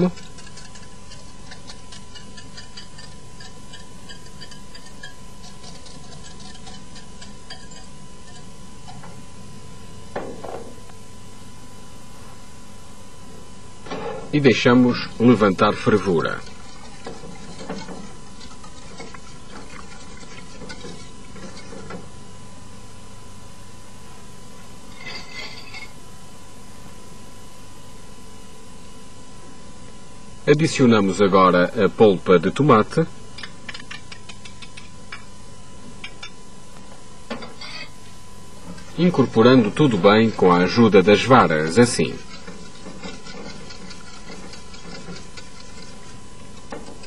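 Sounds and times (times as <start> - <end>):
whisk scraping a metal pot: 0.0 - 9.1, 14.9 - 22.0, 38.8 - 47.0.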